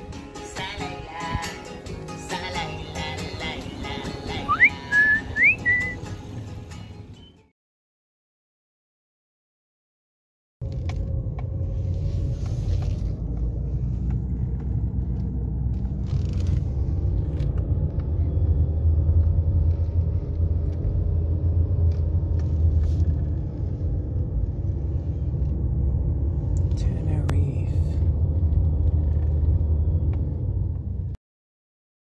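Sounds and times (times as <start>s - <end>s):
car engine and road drone: 0.0s - 7.3s, 10.6s - 31.2s.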